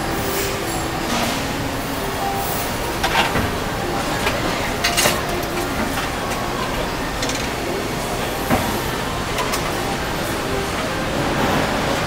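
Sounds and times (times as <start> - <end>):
factory machinery noise: 0.0 - 12.0
metallic clicks and clanks: 4.2 - 6.4, 7.2 - 7.6.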